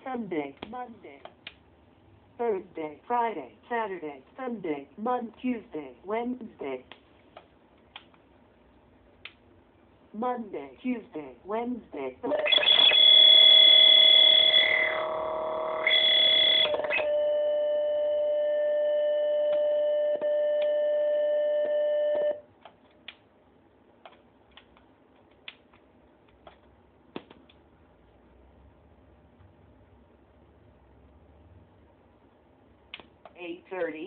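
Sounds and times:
glitched electronic drone: 12.3s - 16.8s.

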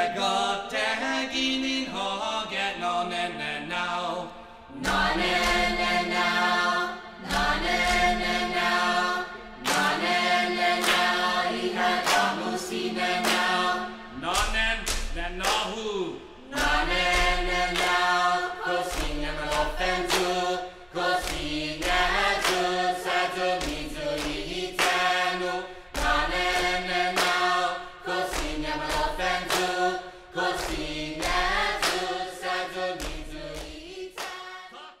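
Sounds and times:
voices chanting in harmony: 0.0s - 14.6s, 15.4s - 35.0s
sharp percussive beats: 4.8s - 6.6s, 7.2s - 20.5s, 21.1s - 25.3s.

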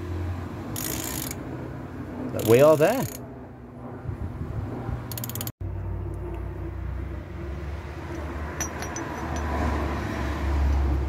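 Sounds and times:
socket ratchet clicking: 2.4s - 3.2s, 5.1s - 5.5s
steady low rumble: 3.2s - 8.4s
light metal clinks: 8.1s - 9.6s.

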